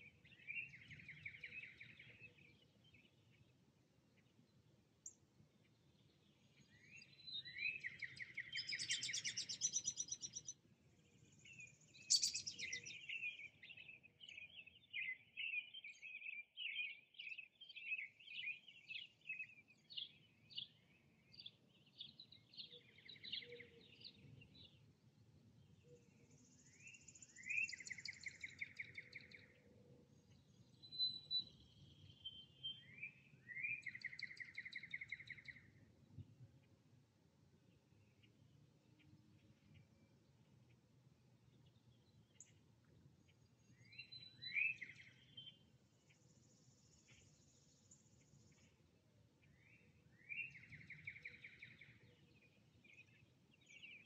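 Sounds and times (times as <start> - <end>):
faint low background noise: 0.0 - 54.0
bird song with buzzy trill: 12.0 - 15.8.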